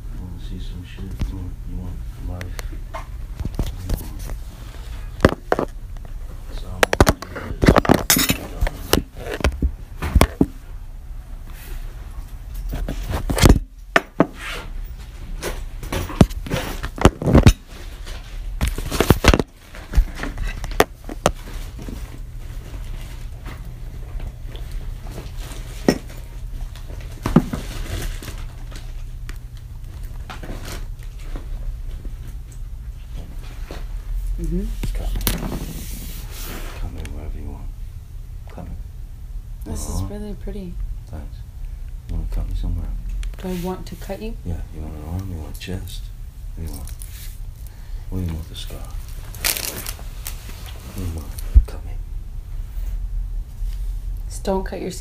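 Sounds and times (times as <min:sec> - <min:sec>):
steady low hum: 0:00.0 - 0:55.0
knocks and clinks of objects: 0:25.7 - 0:26.2.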